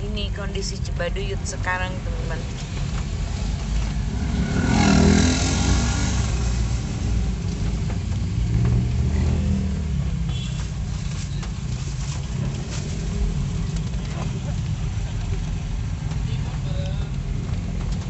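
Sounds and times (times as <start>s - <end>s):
car engine and tyre rumble: 0.0s - 18.0s
passing engine: 3.4s - 10.3s.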